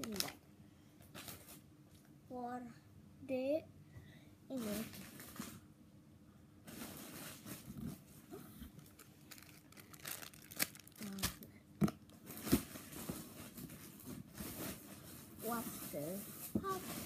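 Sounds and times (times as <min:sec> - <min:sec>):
plastic packaging crinkling: 0:00.0 - 0:00.4, 0:04.6 - 0:05.6, 0:08.8 - 0:11.5.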